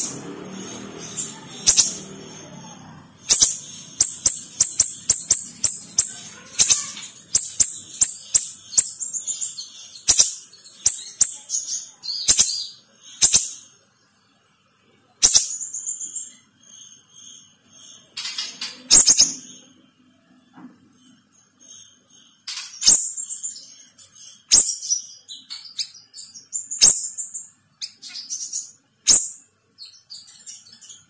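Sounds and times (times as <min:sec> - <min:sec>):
bird calling high sharp notes: 0:00.0 - 0:13.6.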